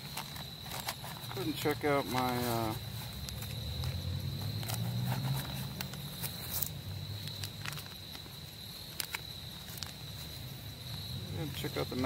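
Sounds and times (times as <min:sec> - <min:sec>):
hands rustling pouch: 0:00.0 - 0:12.0
high-pitched insect call: 0:00.0 - 0:12.0.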